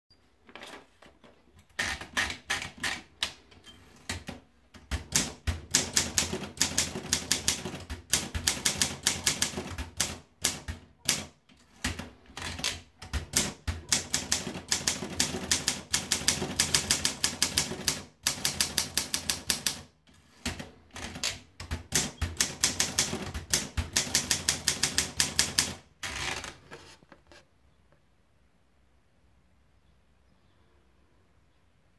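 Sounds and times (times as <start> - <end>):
typewriter keystrokes: 4.0 - 26.5.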